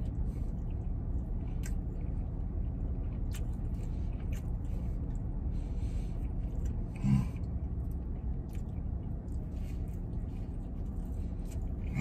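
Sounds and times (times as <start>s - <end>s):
low steady rumble: 0.0s - 12.0s
man chewing food: 0.0s - 12.0s
breathing: 3.8s - 7.4s
hummed grunt: 7.0s - 7.4s.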